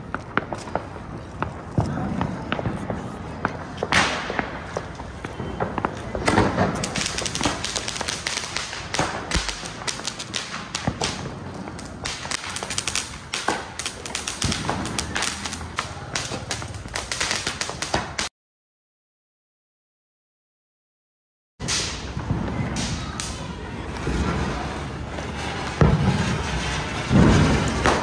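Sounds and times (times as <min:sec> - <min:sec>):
firework cracks and pops: 0:00.0 - 0:18.3, 0:21.6 - 0:28.0
firework burst: 0:21.6 - 0:28.0.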